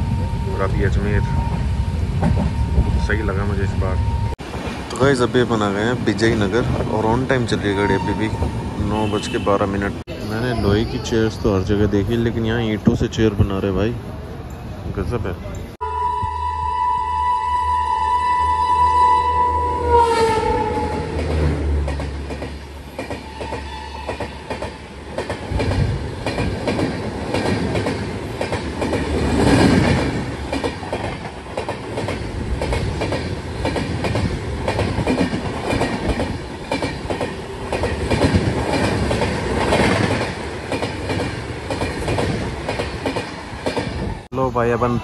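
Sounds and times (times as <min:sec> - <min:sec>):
locomotive horn: 0:15.8 - 0:21.8, 0:23.2 - 0:24.2
train wheels clacking over rail joints: 0:20.8 - 0:44.2.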